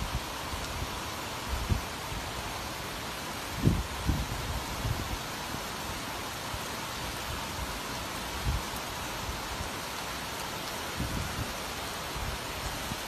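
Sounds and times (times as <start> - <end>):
heavy rain pouring: 0.0 - 13.0.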